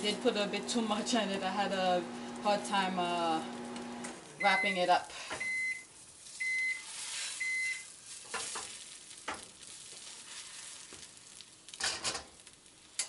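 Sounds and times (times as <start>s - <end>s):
egg sizzling in frying pan: 0.6s - 13.0s
microwave beeps: 3.8s - 7.9s
spatula scraping pan: 6.2s - 8.8s, 9.9s - 11.0s.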